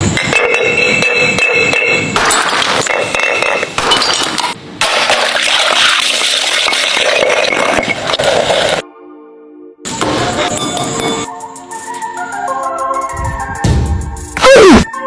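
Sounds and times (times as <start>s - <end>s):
glass bottles crunching in mortar: 2.2s - 8.8s.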